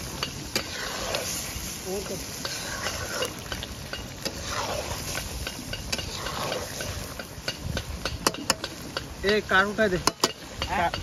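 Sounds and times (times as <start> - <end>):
metal spatula scraping pan: 0.0 - 9.1
sharp taps on pan: 5.1 - 11.0.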